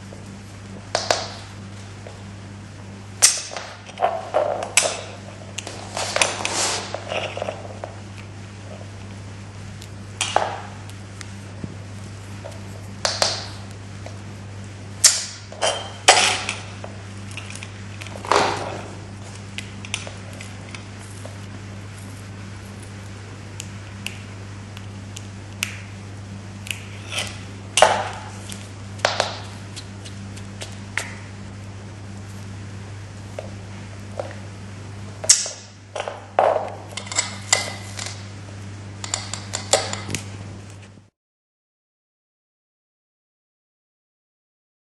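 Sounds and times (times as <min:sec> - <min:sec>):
steady low hum: 0:00.0 - 0:41.1.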